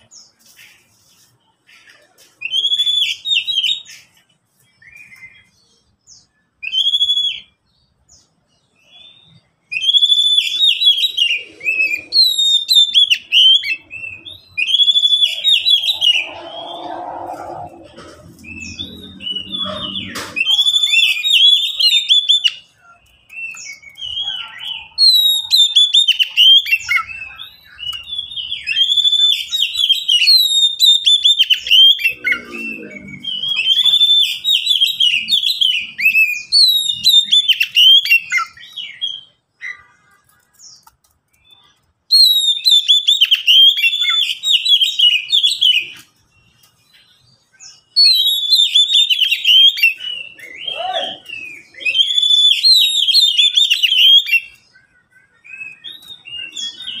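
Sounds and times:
bird singing whistled phrases: 0:06.2 - 0:07.6, 0:08.9 - 0:17.8, 0:18.4 - 0:40.0, 0:41.4 - 0:46.1, 0:47.6 - 0:57.0.

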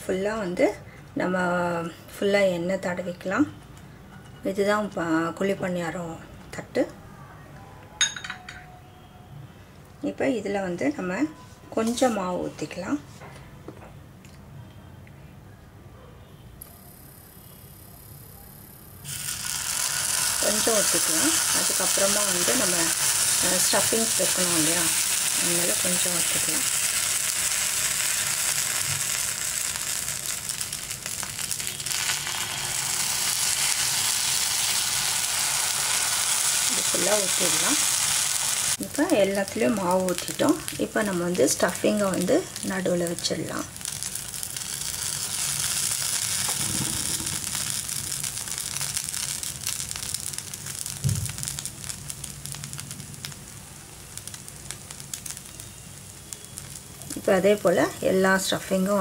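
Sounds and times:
batter sizzling in hot oil: 0:19.0 - 0:59.0
soft low thump: 0:51.0 - 0:51.4.

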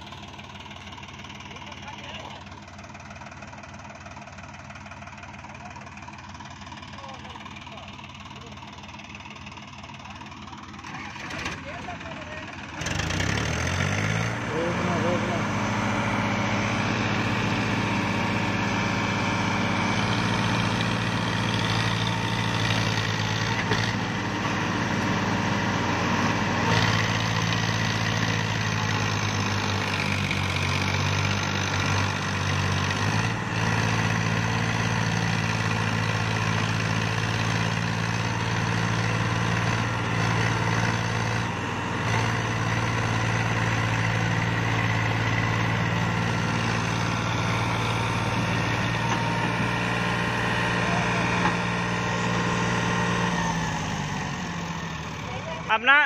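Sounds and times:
tractor diesel engines under load: 0:00.0 - 0:56.0.

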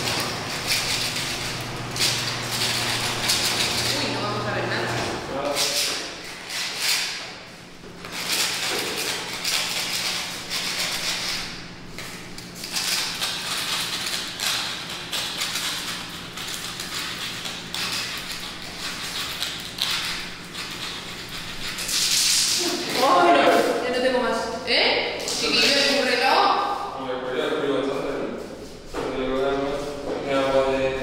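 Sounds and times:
scraper rasping on concrete: 0:00.0 - 0:04.8, 0:05.5 - 0:07.2, 0:08.1 - 0:24.0.

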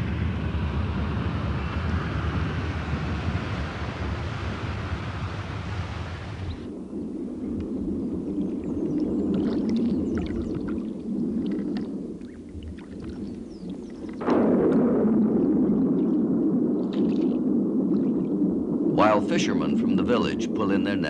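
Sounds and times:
loud rushing sound: 0:00.0 - 0:07.4
low rumble: 0:00.0 - 0:21.0
water splashing and dripping: 0:08.4 - 0:18.7.

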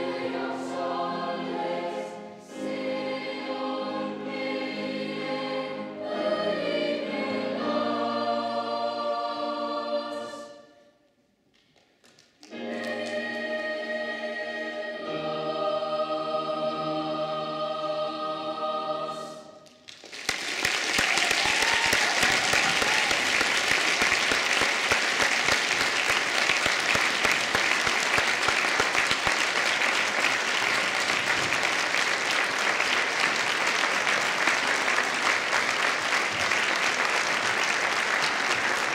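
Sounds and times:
boys' choir singing chord: 0:00.0 - 0:10.7, 0:12.5 - 0:19.6
audience applause: 0:19.9 - 0:38.9.

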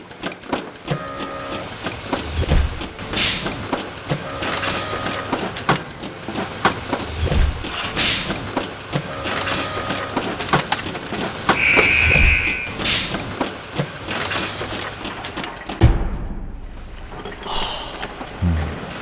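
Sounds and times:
production machinery running: 0:00.0 - 0:15.7
mechanical clicks and clacks: 0:00.0 - 0:16.2, 0:16.8 - 0:19.0
short hisses: 0:11.6 - 0:13.1.

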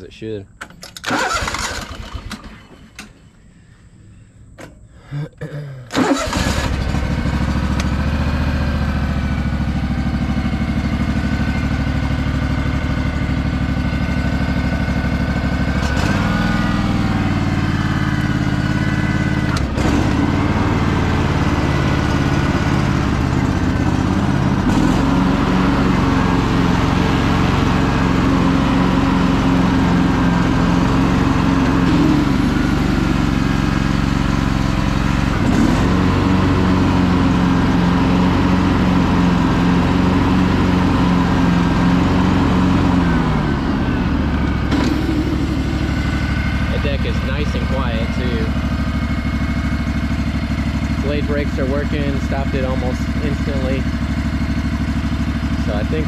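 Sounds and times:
lawn tractor engine starting and running: 0:00.0 - 0:05.1, 0:05.9 - 0:56.0.

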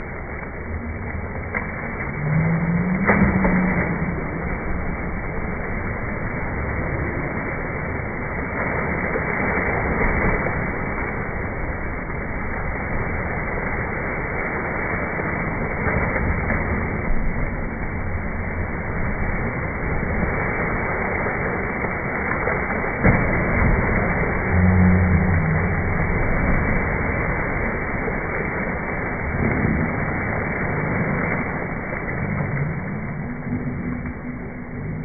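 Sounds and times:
pool water splashing: 0:00.0 - 0:35.0.

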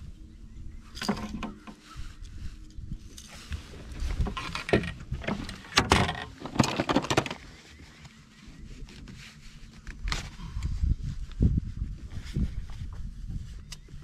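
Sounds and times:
fish handled on boat deck: 0:01.0 - 0:10.6.

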